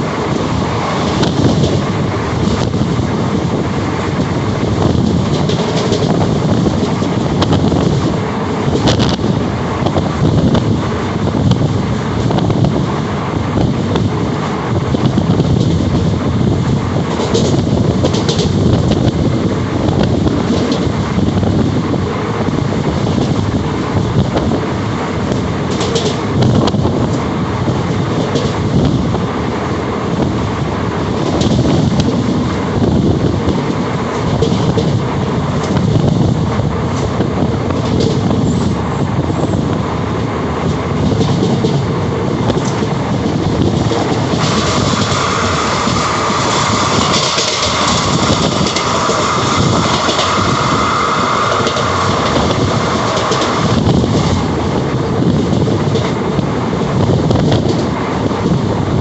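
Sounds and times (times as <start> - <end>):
train wheels rumbling on rails: 0.0 - 59.0
sharp clacks: 25.7 - 27.2, 43.7 - 54.4.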